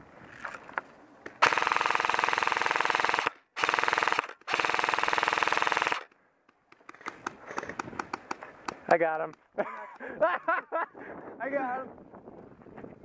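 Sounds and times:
airsoft rifle firing full-auto: 1.4 - 6.1.

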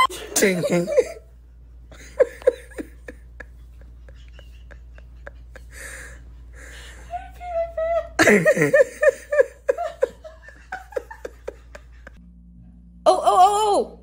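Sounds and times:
person laughing: 1.9 - 12.2.

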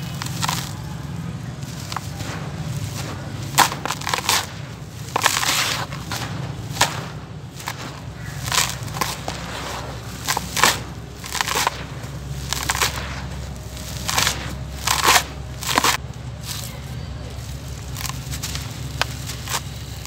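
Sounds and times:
dry dirt crumbled and poured: 0.0 - 20.0.

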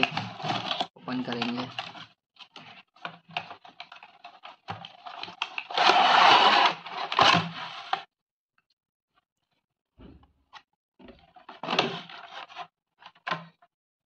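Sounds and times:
cardboard scraping rustle: 4.9 - 8.0.

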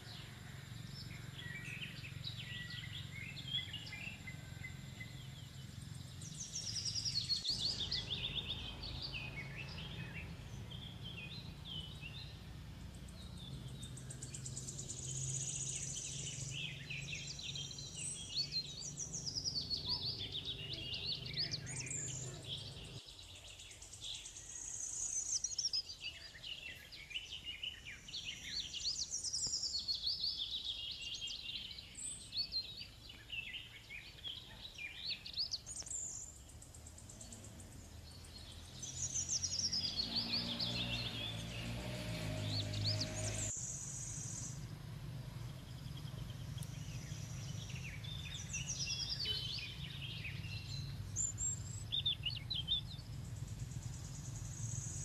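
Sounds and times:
birds chirping and singing: 0.0 - 44.7, 45.5 - 55.0
low steady rumble: 44.0 - 49.1, 49.7 - 55.0.

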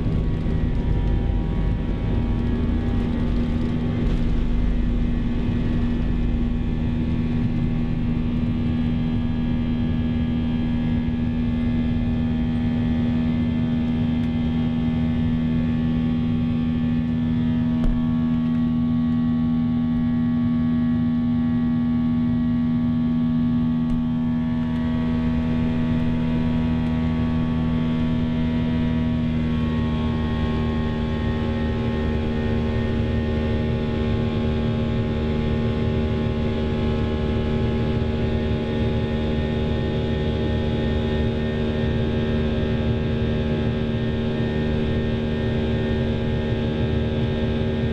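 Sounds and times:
deep rumble: 0.0 - 20.6, 23.1 - 31.8
jet engine drone with whining tones: 0.0 - 47.9.

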